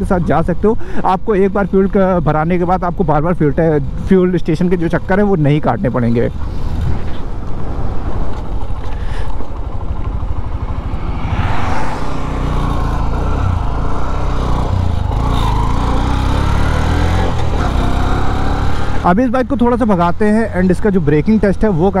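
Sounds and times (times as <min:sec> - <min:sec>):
motorcycle engine accelerating: 0:09.5 - 0:19.0.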